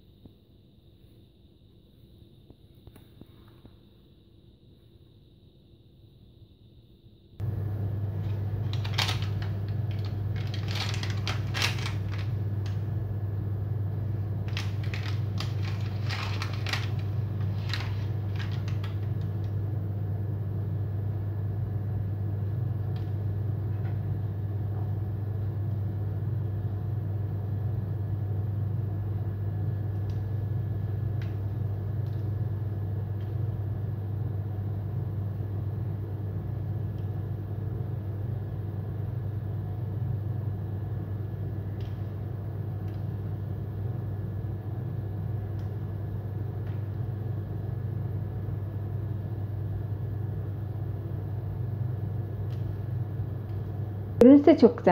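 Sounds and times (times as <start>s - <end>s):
low appliance hum: 0.0s - 54.9s
crackly rustling of baking paper: 8.0s - 13.1s, 14.0s - 19.6s.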